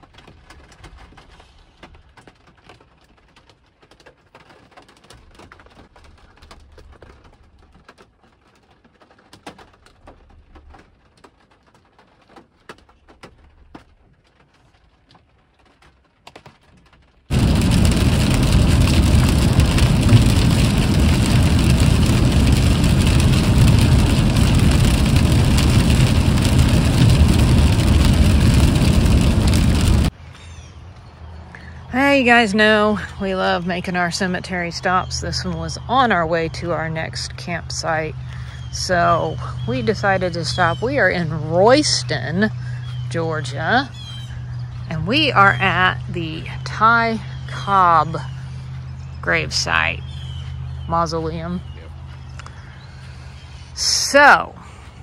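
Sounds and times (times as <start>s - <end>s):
loud steady rushing noise: 17.3s - 30.1s.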